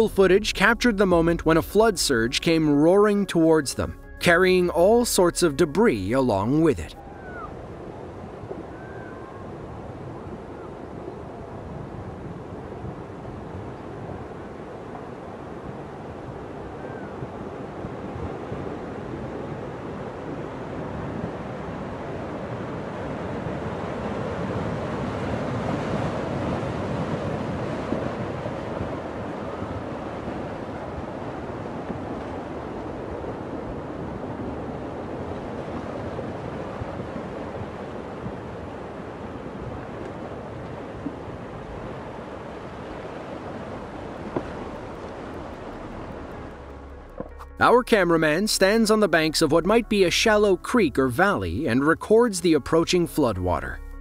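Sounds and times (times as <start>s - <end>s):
roar of rushing water: 7.0s - 47.3s.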